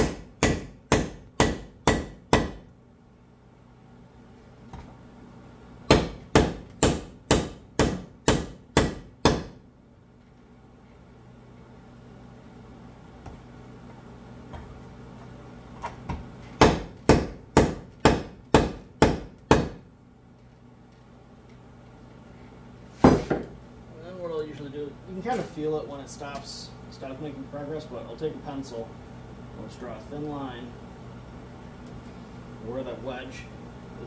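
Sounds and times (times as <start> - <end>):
sledgehammer striking wooden wedge: 0.0 - 2.6, 5.9 - 9.6, 16.6 - 19.8.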